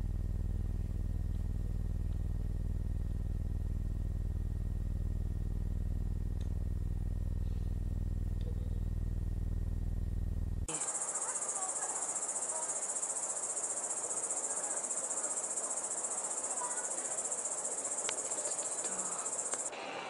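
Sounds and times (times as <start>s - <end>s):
low buzzing hum: 0.0s - 20.0s
insects chirring: 10.7s - 19.8s.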